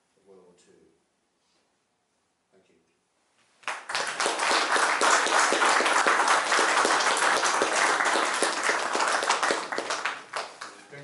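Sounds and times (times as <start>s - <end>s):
audience applauding: 3.6s - 10.9s.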